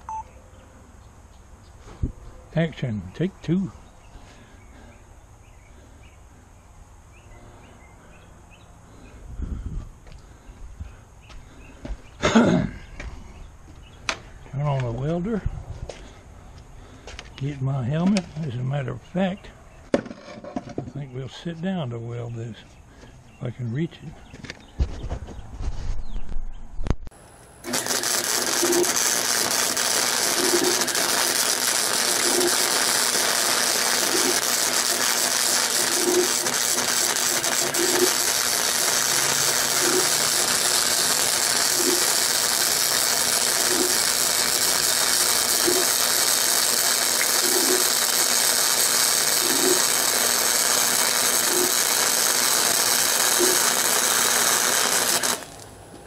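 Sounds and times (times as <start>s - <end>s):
welding arc hiss and crackle: 27.1s - 55.8s.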